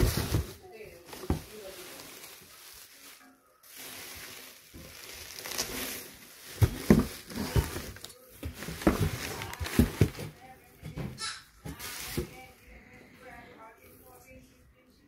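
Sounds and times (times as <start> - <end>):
bubble wrap rustling and crinkling: 0.0 - 10.4, 11.6 - 12.6.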